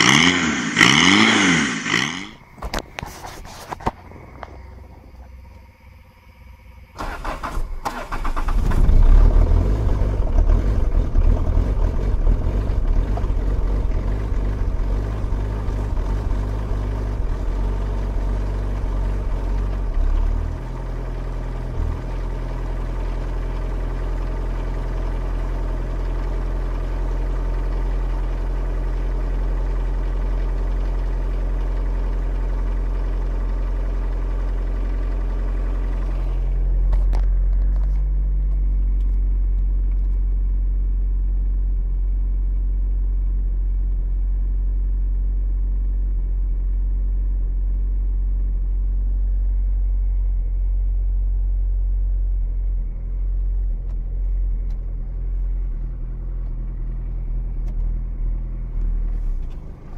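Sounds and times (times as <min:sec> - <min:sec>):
diesel engine starting and idling: 0:00.0 - 0:03.0, 0:03.9 - 0:59.9.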